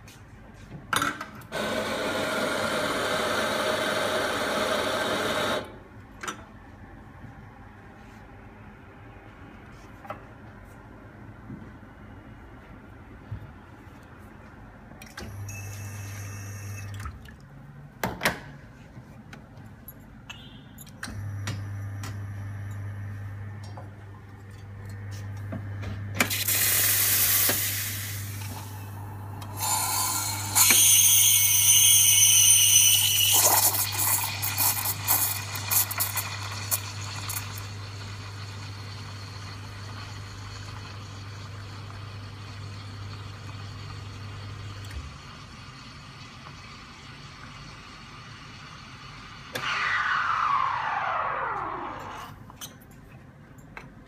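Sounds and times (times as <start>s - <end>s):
espresso machine pump hum: 1.6s - 5.8s, 25.0s - 49.4s.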